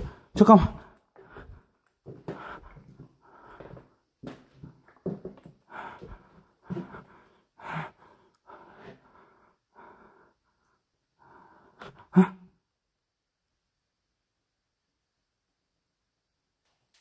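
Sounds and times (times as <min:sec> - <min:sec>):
heavy breathing: 0:00.0 - 0:12.5.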